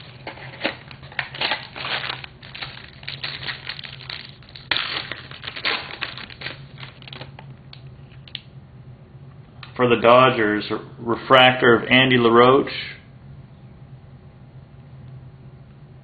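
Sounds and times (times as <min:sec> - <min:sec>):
foil wrapper crinkling and tearing: 0:00.0 - 0:07.5.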